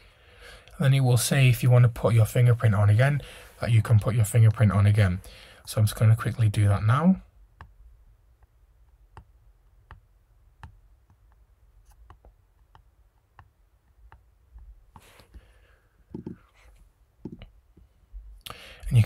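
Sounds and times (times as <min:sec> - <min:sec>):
fingertip tapping laptop key: 0:16.1 - 0:16.4.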